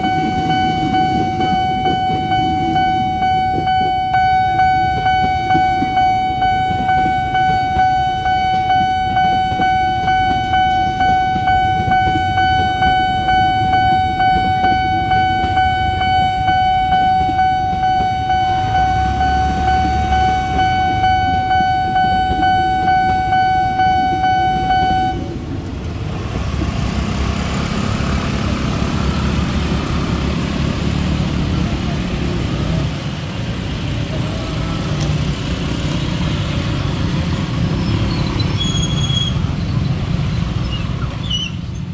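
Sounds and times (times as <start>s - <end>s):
level crossing alarm pulsing: 0.0s - 25.4s
motorbikes and traffic rumble: 0.0s - 41.9s
train rumbling past: 0.0s - 41.9s.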